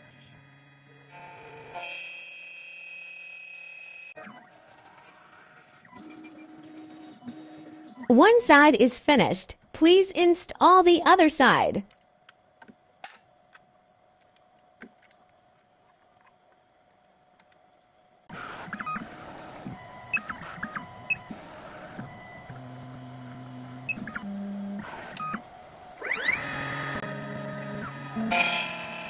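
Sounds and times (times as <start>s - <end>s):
machine motors humming: 0.0s - 1.8s, 18.3s - 29.0s.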